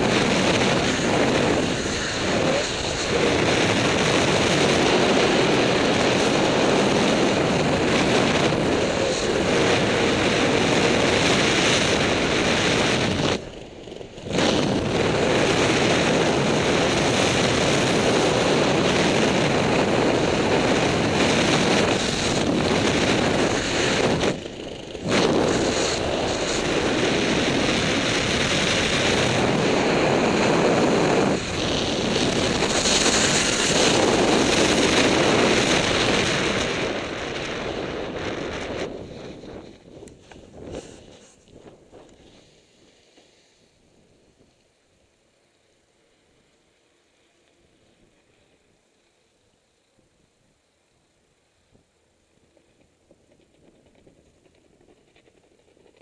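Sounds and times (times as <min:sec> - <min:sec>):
wind rushing over microphone: 0:00.0 - 0:42.6.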